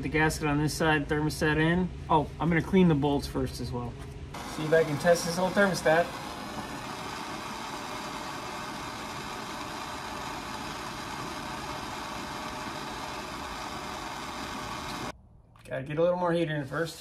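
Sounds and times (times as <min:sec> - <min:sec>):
gas torch hissing: 0:04.4 - 0:15.1.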